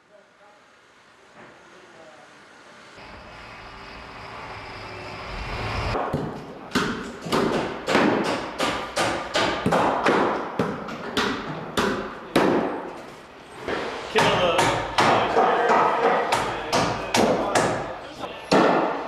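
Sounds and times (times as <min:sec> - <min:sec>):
sharp hammer strikes: 0:06.0 - 0:12.9, 0:14.2 - 0:17.9, 0:18.5 - 0:19.0.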